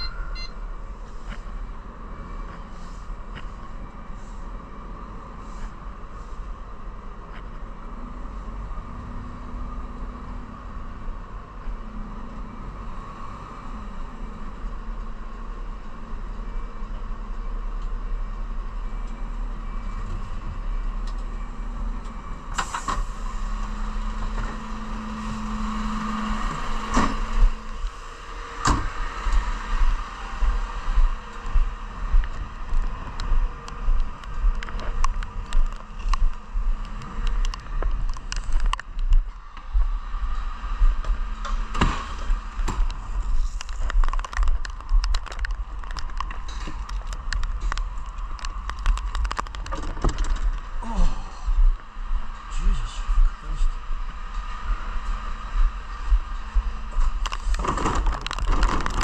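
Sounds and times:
diesel engine running: 0.0 - 59.0
footsteps on block paving: 42.2 - 49.7.

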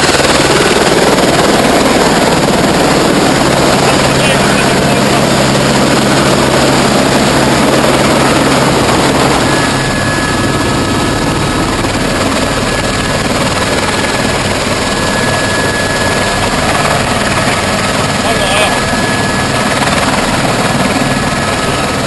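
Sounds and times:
helicopter running: 0.0 - 22.0
high-pitched turbine whine: 0.0 - 22.0.

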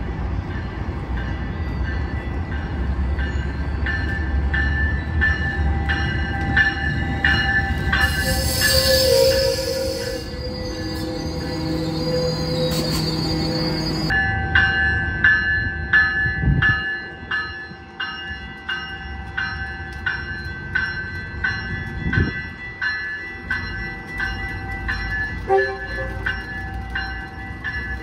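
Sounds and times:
rumble of rail cars: 0.0 - 28.0
train bell ringing: 0.4 - 28.0
train wheel squeal: 5.3 - 14.2.

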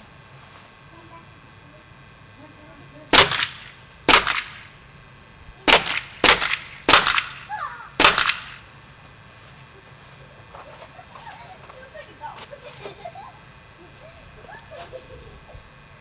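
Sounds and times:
paintball marker firing: 3.1 - 4.7, 5.7 - 8.7.

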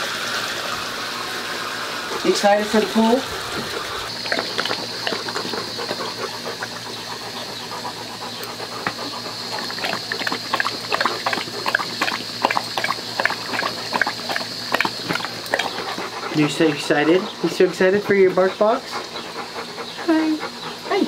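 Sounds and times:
garden hose hissing: 0.0 - 21.0
dog lapping water: 2.0 - 21.0.

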